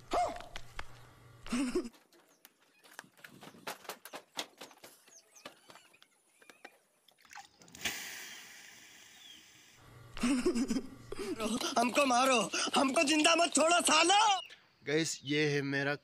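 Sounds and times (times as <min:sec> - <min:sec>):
steady hiss: 0:07.8 - 0:09.8.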